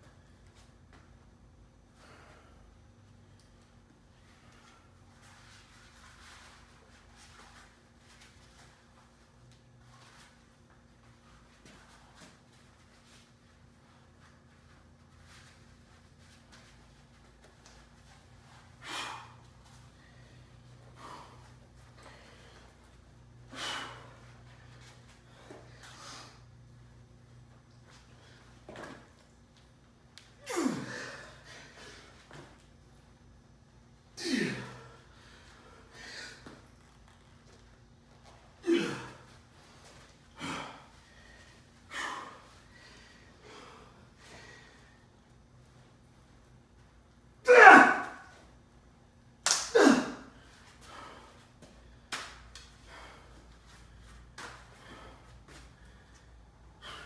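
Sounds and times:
man grunting and exhaling hard: 30.4 - 31.3, 34.2 - 34.9, 38.6 - 39.2, 47.5 - 48.2, 49.7 - 50.4.

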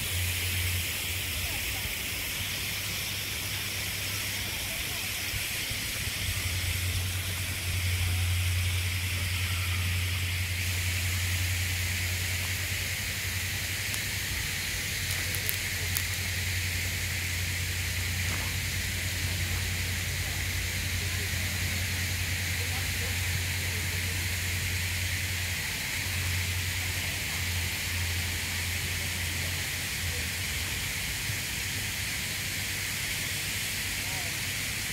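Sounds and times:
low hum: 0.0 - 18.2
faint distant voices: 0.0 - 34.9
outdoor background hiss: 0.0 - 34.9.

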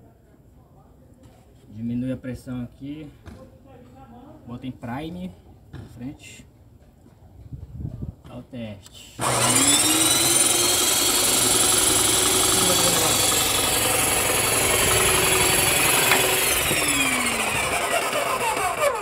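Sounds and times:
paint sprayer motor whine: 9.2 - 19.0.

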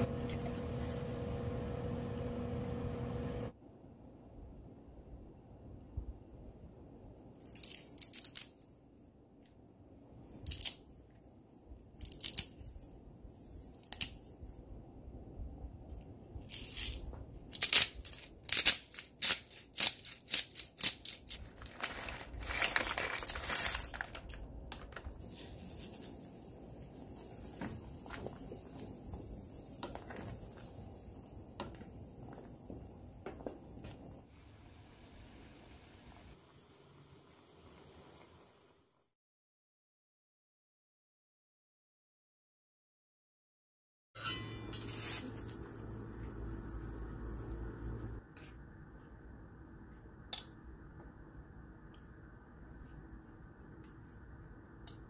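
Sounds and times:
pot boiling: 0.0 - 3.5, 25.2 - 38.8, 44.9 - 48.2
rustling and crunching ingredients: 16.4 - 32.7.

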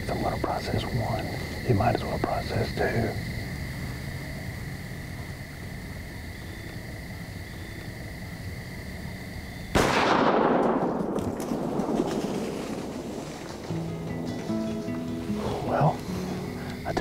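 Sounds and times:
insects trilling: 0.0 - 17.0
gunshot with long echo: 9.7 - 13.2.

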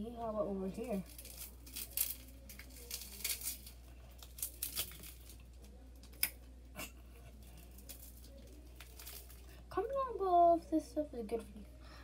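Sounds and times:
screen protector crackling: 1.1 - 6.4.

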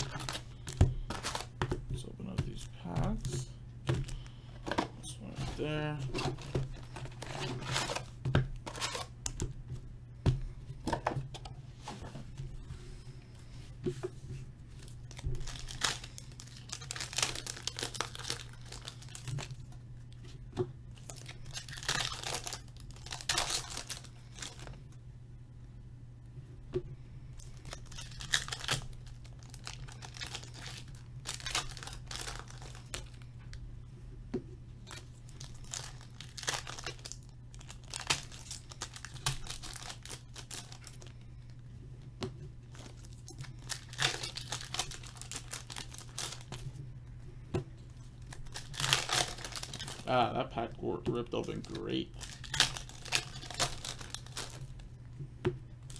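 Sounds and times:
foil wrappers ripping and crinkling: 0.0 - 1.5, 5.4 - 9.1, 14.8 - 19.7, 21.0 - 24.8, 27.4 - 33.2, 34.8 - 41.2, 42.7 - 46.6, 48.2 - 50.4, 51.1 - 54.8
cards being handled: 0.0 - 9.4
steady low hum: 0.0 - 55.9.

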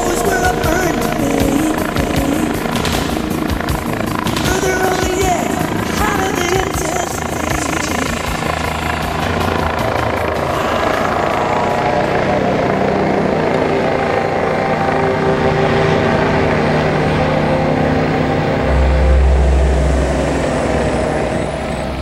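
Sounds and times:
helicopter engine droning: 0.0 - 22.0
helicopter rotor beating: 0.0 - 22.0.

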